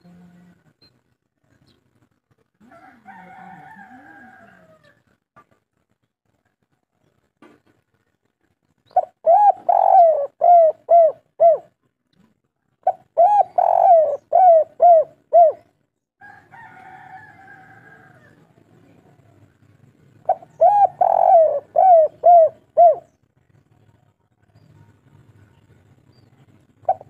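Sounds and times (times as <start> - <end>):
dove cooing: 8.9 - 11.8, 12.8 - 15.8, 20.2 - 23.2, 26.8 - 27.0.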